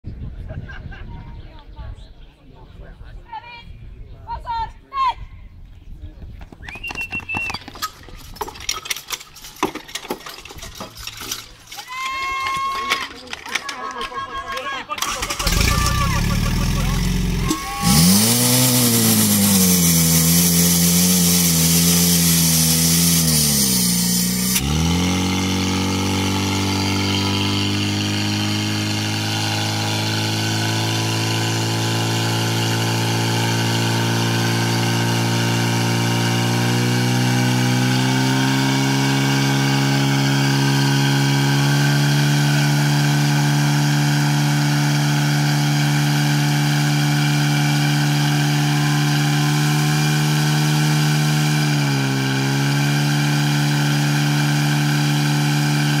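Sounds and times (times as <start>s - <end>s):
pump engine running: 15.0s - 56.0s.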